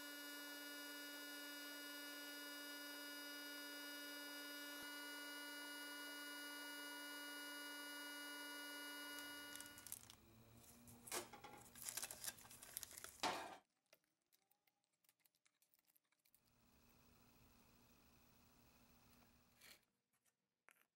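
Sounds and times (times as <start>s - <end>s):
electrical hum with whine: 0.0s - 13.1s
gloved hands rustling and crinkling: 9.5s - 10.2s, 11.0s - 13.3s.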